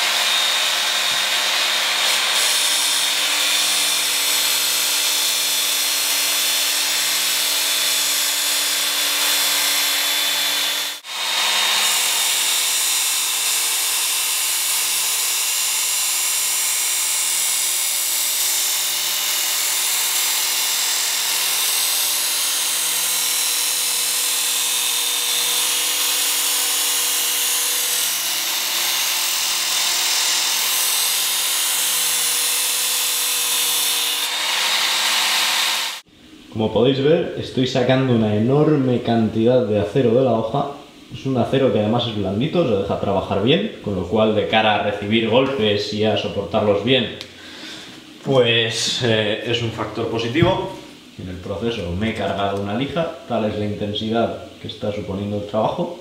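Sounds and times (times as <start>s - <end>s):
blade grinding on belt sharpener: 0.0s - 36.1s.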